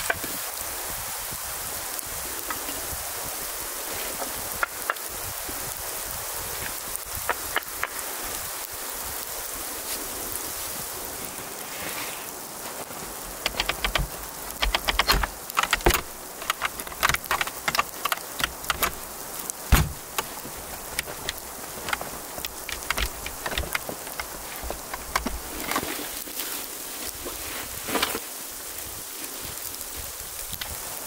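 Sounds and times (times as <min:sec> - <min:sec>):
sleet pattering: 0:02.0 - 0:31.0
wooden door and metal hasp clicking: 0:13.4 - 0:19.1, 0:19.7 - 0:25.4.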